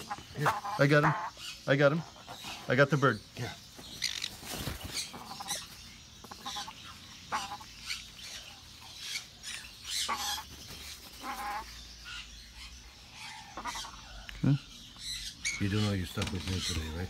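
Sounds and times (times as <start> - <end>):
parrot squawking harshly: 0.0 - 1.6, 9.9 - 10.5, 13.2 - 14.1.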